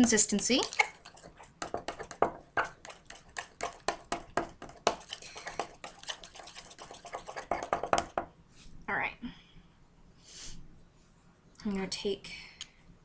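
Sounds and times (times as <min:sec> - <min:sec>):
knife scraping a ceramic mug: 0:00.6 - 0:03.9, 0:04.8 - 0:08.1.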